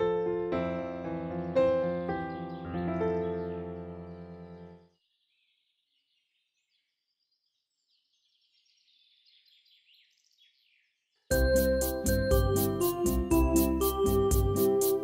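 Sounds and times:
piano music: 0.0s - 4.9s, 11.3s - 15.0s
small birds chirping: 0.8s - 15.0s
music with steady beat: 11.3s - 15.0s.

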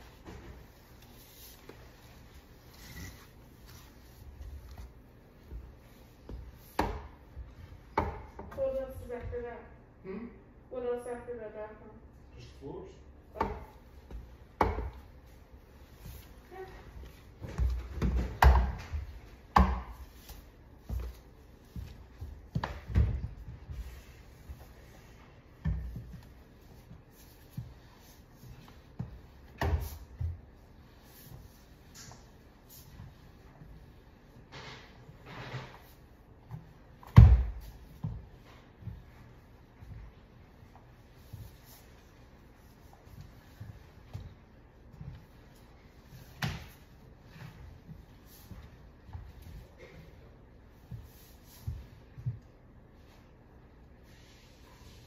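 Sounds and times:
broom sweeping wooden floor: 0.0s - 9.5s, 13.4s - 55.0s.

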